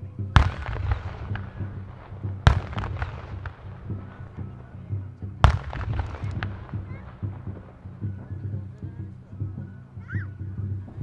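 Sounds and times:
fireworks loud bangs: 0:00.0 - 0:09.7
fireworks small pops: 0:00.0 - 0:09.7
fireworks crackling: 0:00.0 - 0:10.0.

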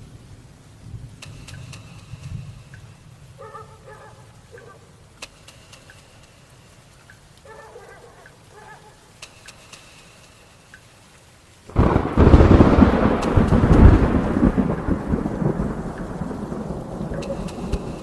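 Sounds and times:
thunderclap rumbling: 0:11.7 - 0:18.0.

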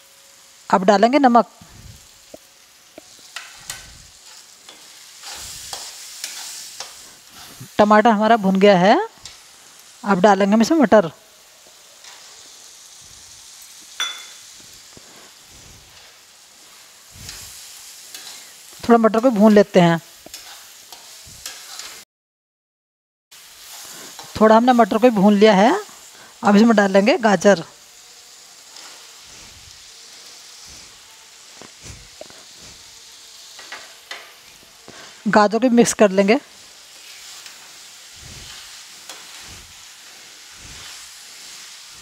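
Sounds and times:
food sizzling in a pan: 0:00.0 - 0:22.0, 0:23.3 - 0:42.0
spatula clinking against pan: 0:14.0 - 0:14.5
soft stirring: 0:38.1 - 0:41.8.

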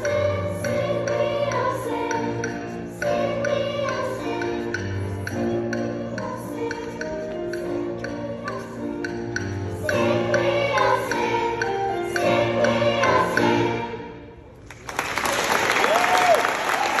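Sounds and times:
girls' choir singing in harmony: 0:00.0 - 0:14.5
audience applause: 0:14.6 - 0:17.0.

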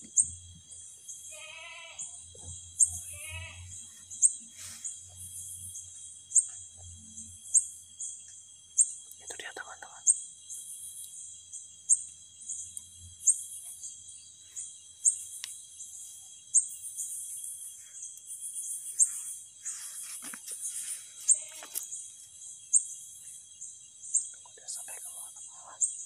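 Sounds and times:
cricket trill: 0:00.0 - 0:26.0
sharp high insect chirp: 0:00.0 - 0:26.0
stick rustling and scraping stones: 0:18.8 - 0:22.0.

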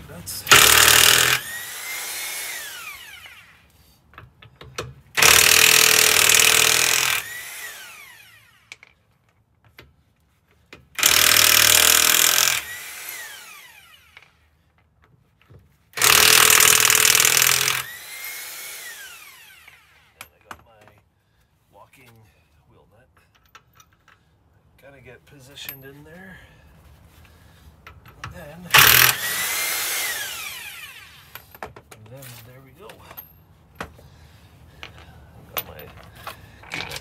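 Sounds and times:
impact wrench hammering: 0:00.5 - 0:02.6, 0:04.5 - 0:07.8, 0:11.0 - 0:13.3, 0:16.0 - 0:18.9, 0:28.7 - 0:30.3
motor whining down: 0:28.8 - 0:31.2.

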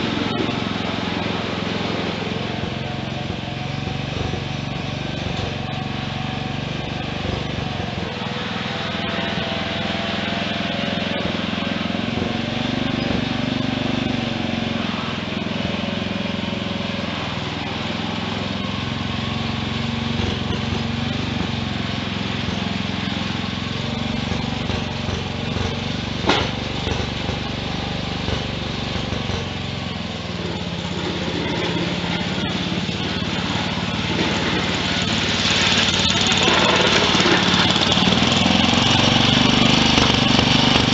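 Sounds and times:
garden tractor engine running: 0:00.0 - 0:40.9.

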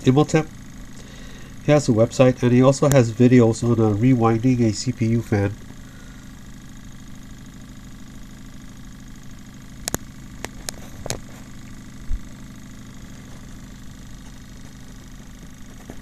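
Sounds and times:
fan motor humming: 0:00.0 - 0:16.0
sharp clicks: 0:09.8 - 0:11.2.

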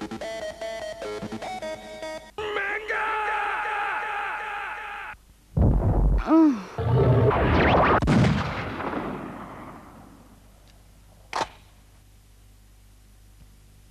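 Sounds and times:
low tape hum: 0:00.0 - 0:13.9
loud explosive rush: 0:05.6 - 0:06.2, 0:06.8 - 0:10.1
short sharp crack: 0:11.3 - 0:11.7.

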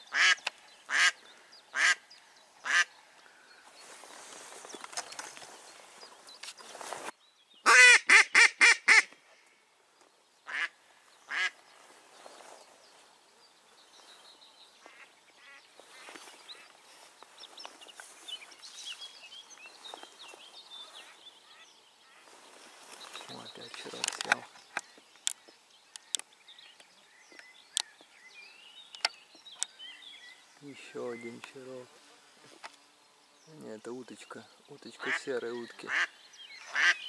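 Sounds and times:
duck quacking: 0:00.1 - 0:02.0, 0:10.5 - 0:10.7, 0:35.0 - 0:37.0.

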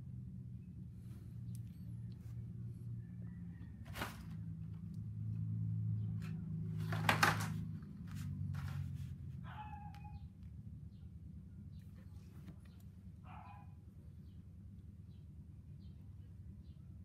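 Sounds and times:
steady low hum: 0:00.0 - 0:17.0
plastic figures and paper rustling: 0:06.2 - 0:09.2.

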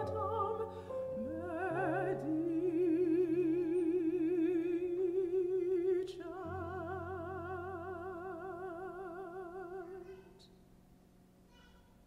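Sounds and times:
piano accompaniment: 0:00.0 - 0:05.2
soprano singing with vibrato: 0:00.0 - 0:10.5.

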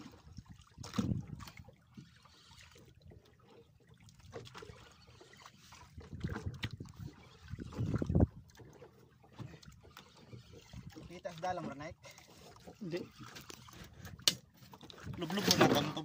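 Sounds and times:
knocks and bumps on boat: 0:00.0 - 0:01.6, 0:05.9 - 0:09.8
water lapping against boat hull: 0:00.0 - 0:16.0.

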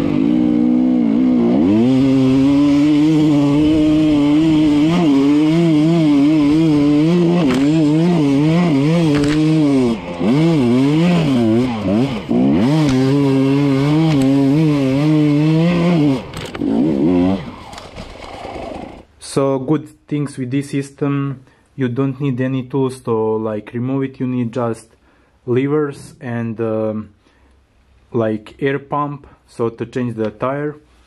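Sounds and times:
dirt bike engine revving: 0:00.0 - 0:19.1.

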